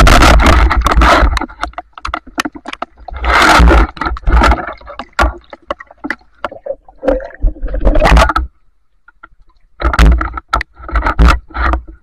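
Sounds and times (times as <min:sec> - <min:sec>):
river water sloshing and splashing: 0:00.0 - 0:08.5.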